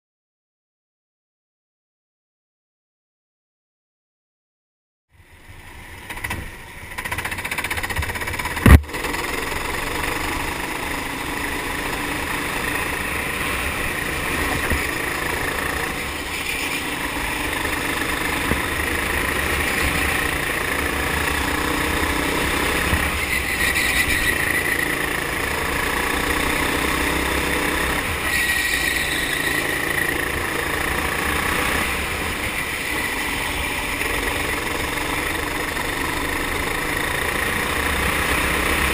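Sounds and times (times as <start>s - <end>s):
kart engine running: 5.3s - 38.9s
sharp knock: 8.6s - 8.9s.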